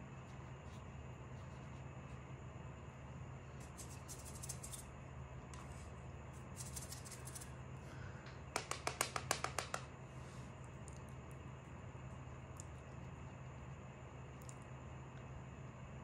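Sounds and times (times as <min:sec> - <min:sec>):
faint steady hum: 0:00.0 - 0:16.0
light sharp clicking taps: 0:08.2 - 0:09.9.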